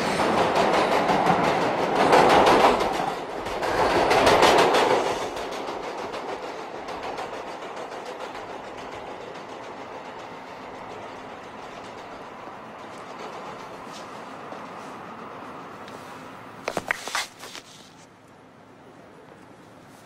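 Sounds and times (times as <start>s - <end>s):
train wheels clattering on rails: 0.0s - 16.0s.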